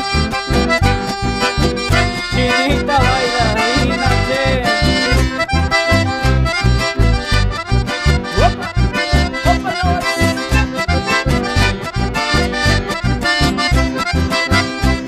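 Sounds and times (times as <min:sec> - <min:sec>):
sliding melody line: 0:00.0 - 0:14.8
accordion band music: 0:00.0 - 0:15.0
steady bass beat: 0:00.0 - 0:15.0.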